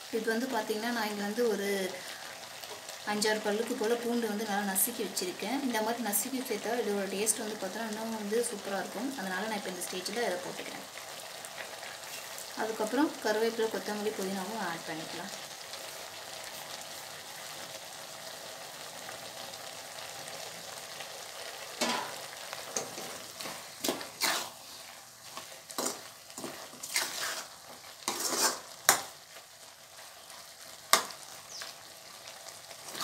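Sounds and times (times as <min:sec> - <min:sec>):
meat sizzling in a pan: 0:00.0 - 0:33.0
ladle scraping a pan: 0:22.8 - 0:29.1.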